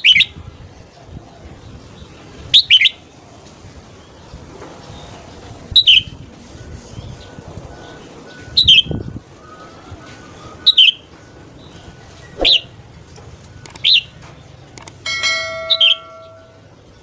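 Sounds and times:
bird calling sharp whistle: 12.4 - 12.7.

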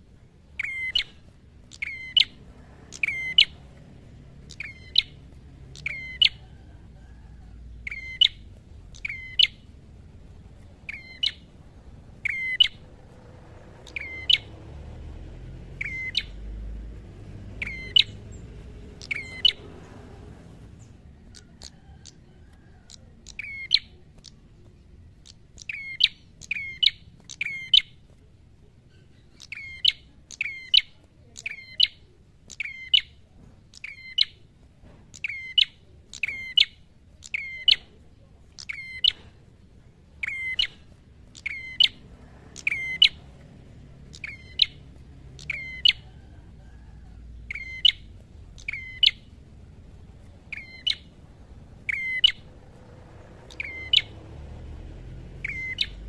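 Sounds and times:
bird calling sharp descending notes: 51.8 - 56.0.

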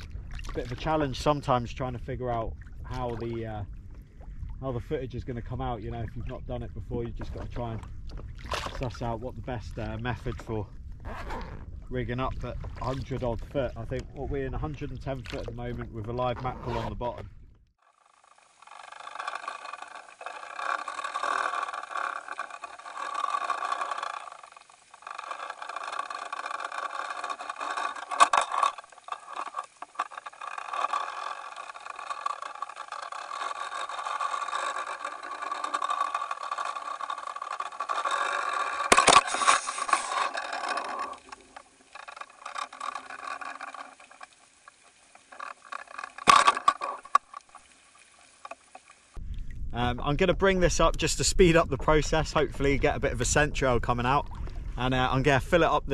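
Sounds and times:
muffled underwater rushing and rattling: 0.0 - 55.9.

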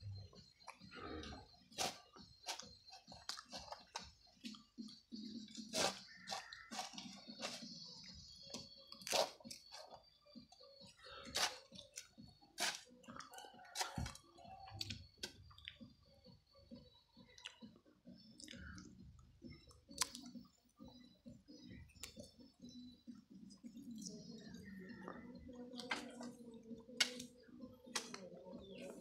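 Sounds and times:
hoe chopping soil: 1.8 - 2.6, 5.6 - 7.7, 11.3 - 11.6, 12.6 - 12.8.

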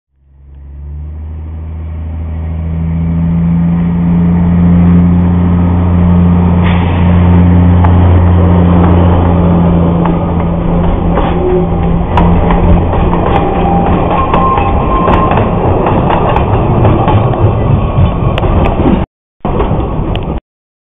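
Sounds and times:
diesel locomotive engine drone: 0.2 - 20.4
train wheels clattering on rails: 6.6 - 20.4.

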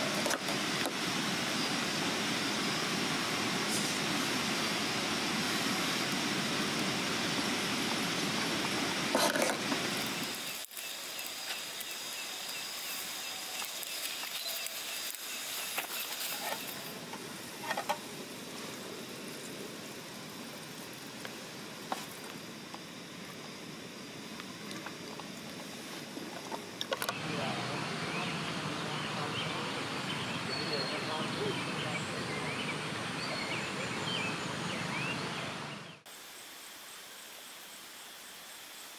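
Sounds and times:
steady rushing noise: 0.0 - 36.2
campfire hissing and crackling: 0.0 - 38.9.

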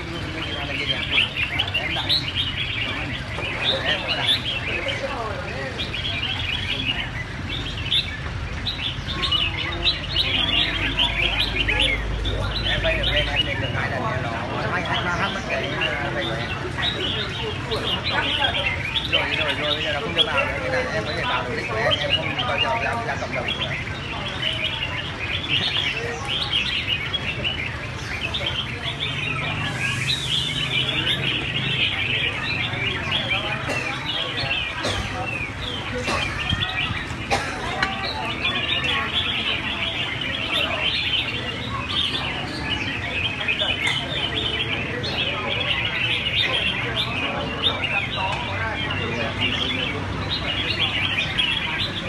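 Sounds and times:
birds singing and chirping: 0.0 - 52.0.

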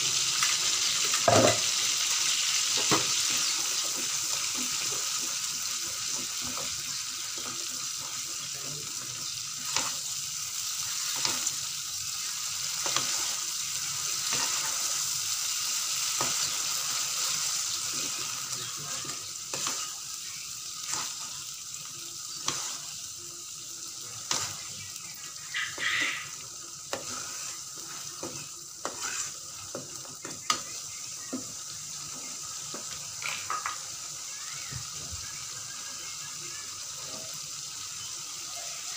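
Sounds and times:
paste sizzling in oil: 0.0 - 38.9
metal spatula scraping wok: 25.6 - 29.8.

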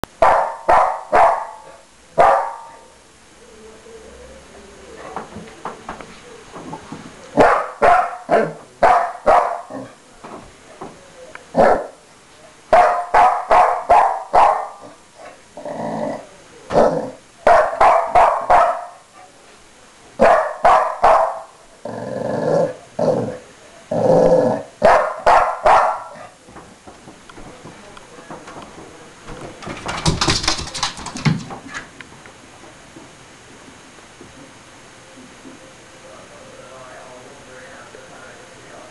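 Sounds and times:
dog barking: 0.2 - 2.9, 7.4 - 9.9, 11.6 - 12.0, 12.7 - 15.0, 17.4 - 19.0, 20.2 - 21.5, 24.8 - 26.4
dog growling barks: 0.2 - 2.9, 7.4 - 10.0, 11.5 - 12.0, 12.7 - 19.0, 20.2 - 26.4.

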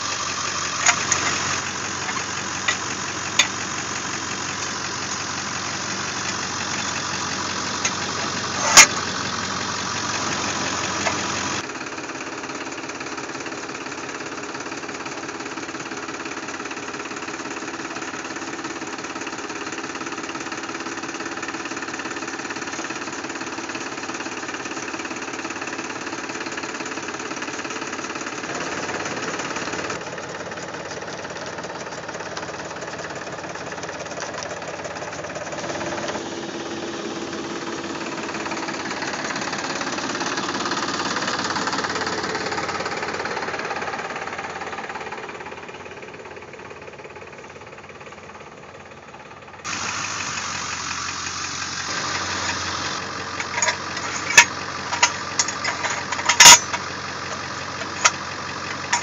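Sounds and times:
engine running: 0.0 - 59.0
sharp metal clanks: 0.7 - 3.6, 51.9 - 59.0.

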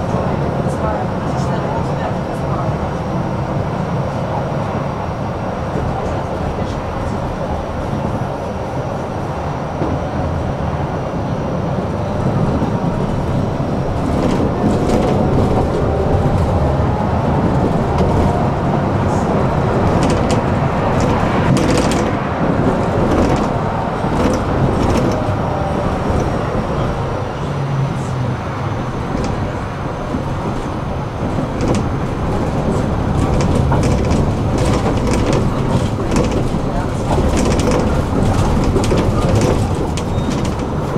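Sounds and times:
tram wheels rumbling on rails: 0.0 - 40.9
clicks and knocks over track: 19.8 - 25.3, 30.1 - 40.9.

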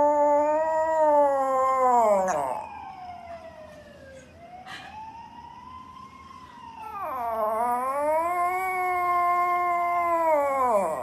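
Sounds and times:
dog howling: 0.0 - 2.8, 6.8 - 11.0.

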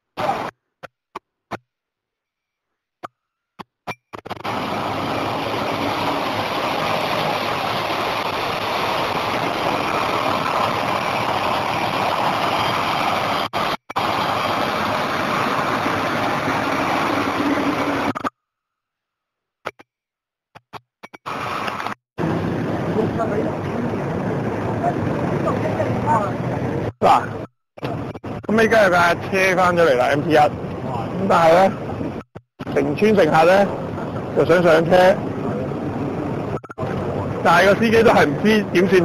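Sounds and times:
street traffic: 3.0 - 18.3, 20.5 - 39.0
bus engines running: 4.3 - 18.3, 21.3 - 32.2, 32.8 - 39.0.

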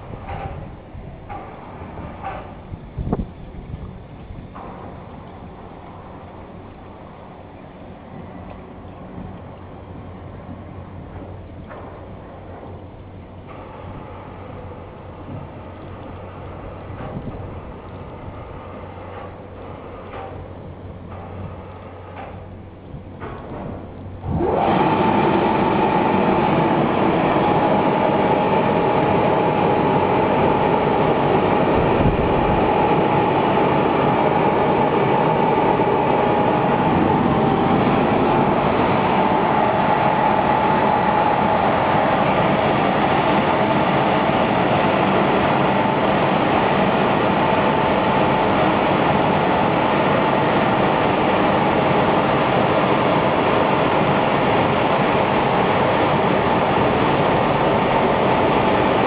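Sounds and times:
car wash machine rushing: 0.0 - 59.0
steady machine whine: 0.0 - 59.0.

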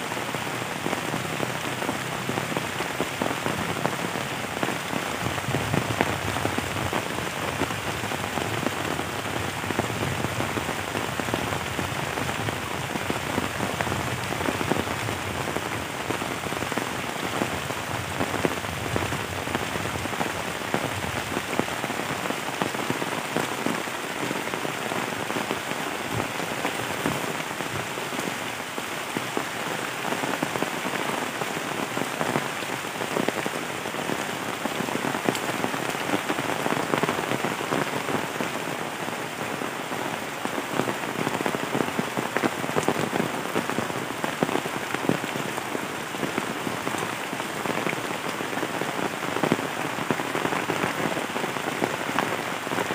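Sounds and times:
heavy rain on leaves: 0.0 - 52.9.

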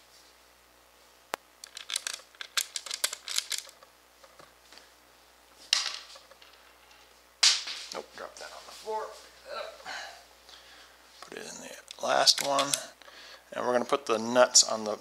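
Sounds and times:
screws clicking and rattling: 1.6 - 3.8.

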